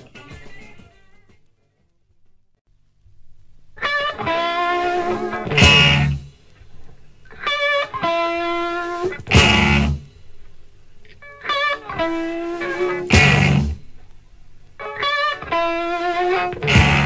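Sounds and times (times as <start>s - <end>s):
distorted electric guitar lick: 3.7s - 17.0s
electric blues band: 3.8s - 17.0s.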